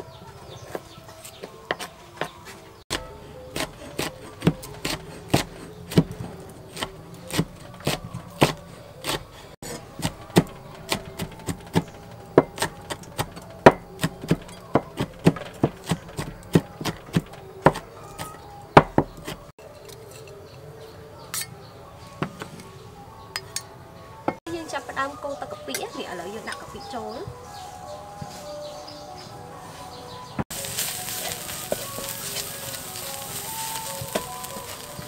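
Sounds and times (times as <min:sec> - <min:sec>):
cleaver chopping on wood: 0:00.7 - 0:19.4.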